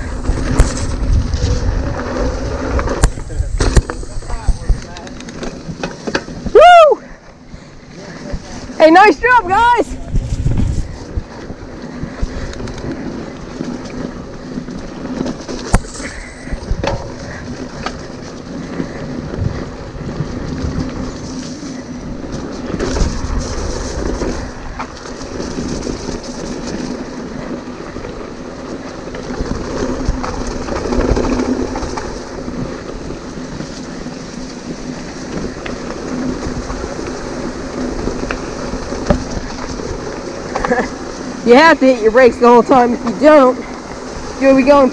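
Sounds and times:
wind on microphone: 0.0 - 5.4, 8.2 - 28.0
bike rattling over bumps: 0.0 - 44.9
bike tyres rolling over dirt: 0.0 - 44.9.

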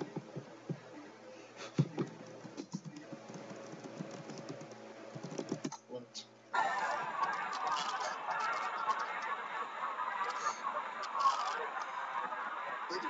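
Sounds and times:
faint steady hum: 0.0 - 13.0
laptop keyboard keys clicking: 1.8 - 5.8.

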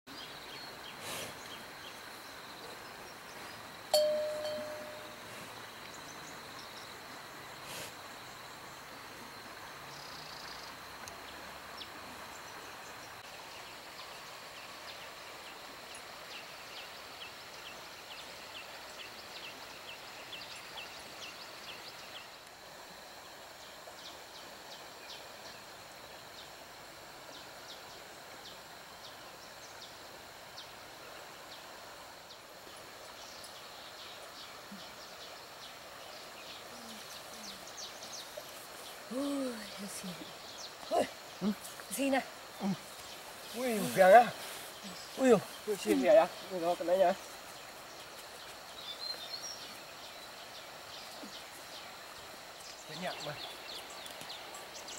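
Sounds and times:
high insect hum: 0.1 - 54.9
short high chirps: 4.0 - 5.2.

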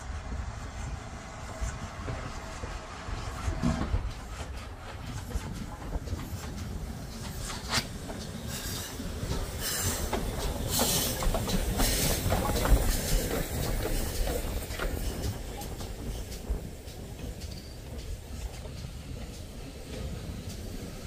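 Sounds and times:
steam locomotive wheels clicking on rails: 0.0 - 21.0
hissing blasts of steam: 6.2 - 21.0.

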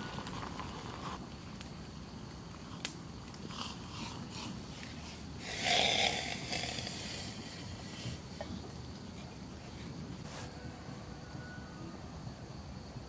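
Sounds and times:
campfire crackling and popping: 0.0 - 10.3.

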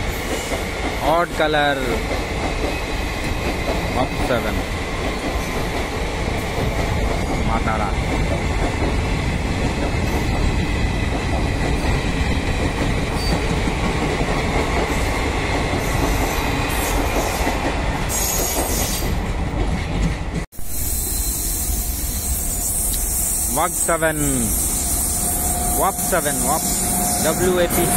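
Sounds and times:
train wheels rumbling on rail: 0.0 - 27.9.

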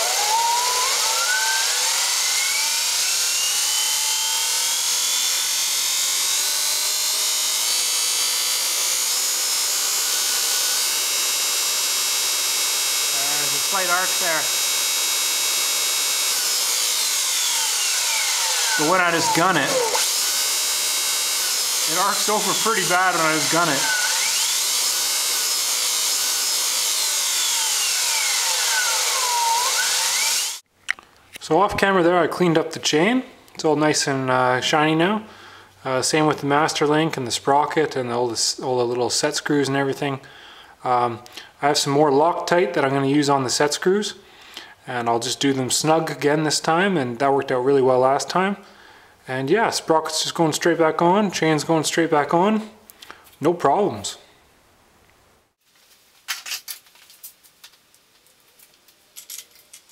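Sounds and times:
electric motor whine: 0.0 - 30.6
constant hiss: 52.8 - 59.9.

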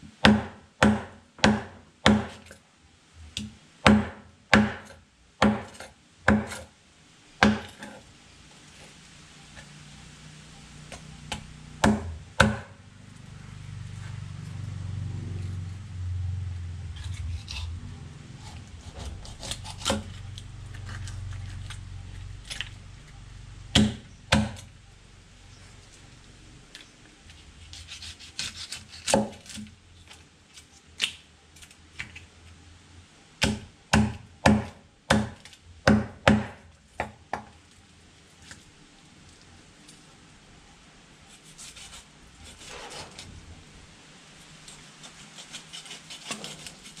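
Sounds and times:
knife chopping on wooden block: 0.2 - 2.5, 3.4 - 6.6, 7.4 - 8.0, 11.3 - 12.8, 18.9 - 20.1, 23.7 - 24.6, 33.4 - 37.5
low rumble: 11.5 - 26.7.

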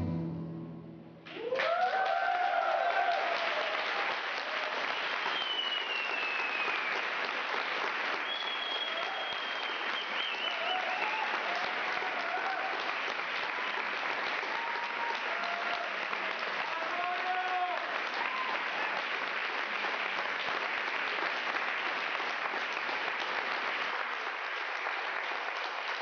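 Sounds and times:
audience applauding: 1.2 - 26.0
high falling whistles: 5.3 - 6.9.

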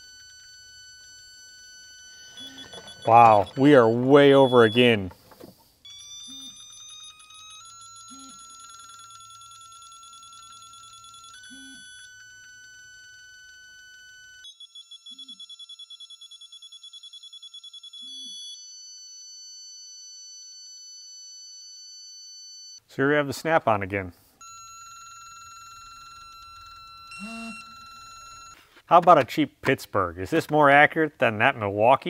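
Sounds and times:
torque wrench alert tones: 0.0 - 5.2, 5.9 - 13.5, 24.4 - 28.6.

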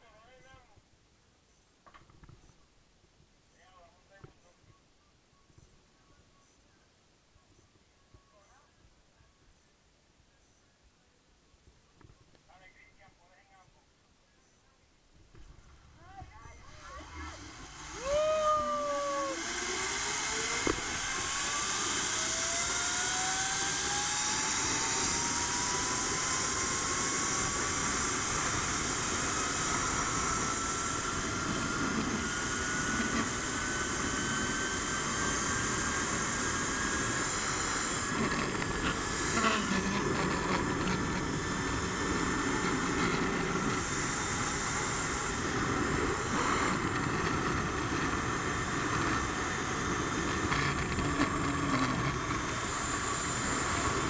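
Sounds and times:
zip-line pulleys whining on cable: 16.2 - 54.0.

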